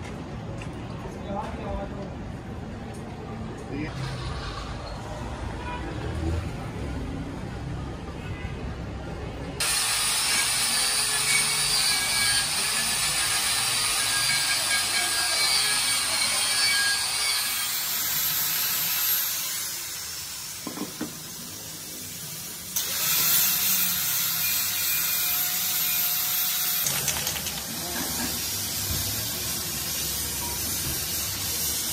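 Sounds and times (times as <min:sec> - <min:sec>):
electric sander grinding metal: 0:09.6 - 0:19.7.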